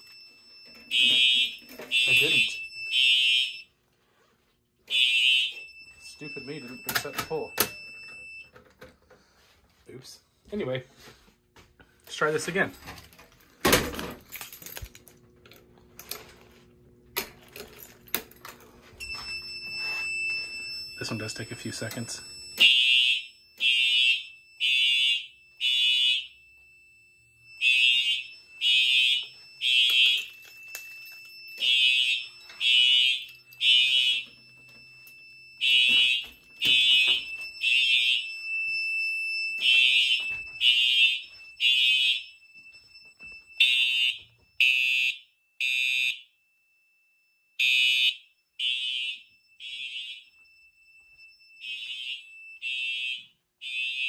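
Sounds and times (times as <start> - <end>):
faint steady alarm tone: 0.0 - 13.8, 15.5 - 54.0
fire alarm horn blasts: 0.7 - 3.8, 4.9 - 8.5, 19.0 - 30.9, 31.6 - 46.4, 47.5 - 54.0.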